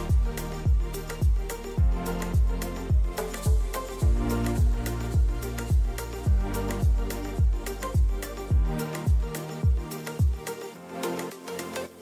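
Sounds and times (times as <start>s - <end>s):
electronic music with steady beat: 0.0s - 12.0s
deep kick drum: 0.1s - 10.4s.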